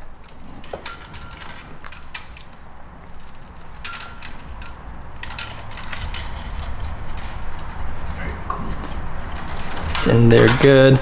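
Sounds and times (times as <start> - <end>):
plastic connectors clicking and rattling: 8.8 - 11.0.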